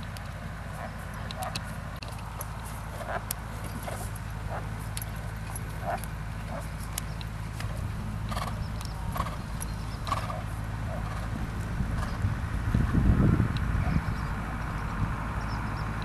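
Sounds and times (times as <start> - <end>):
horse hoofbeats on sand: 0.0 - 12.2
steady low hum: 0.0 - 16.0.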